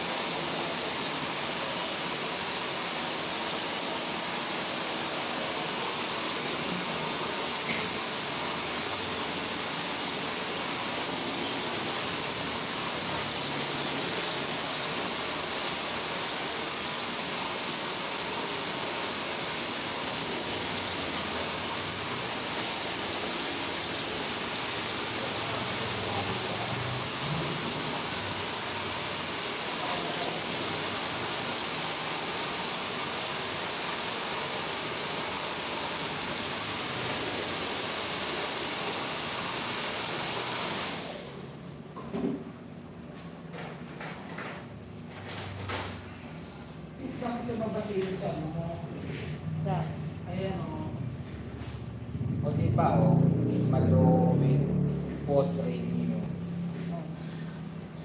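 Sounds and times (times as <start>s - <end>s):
hair dryer blowing: 0.0s - 41.6s.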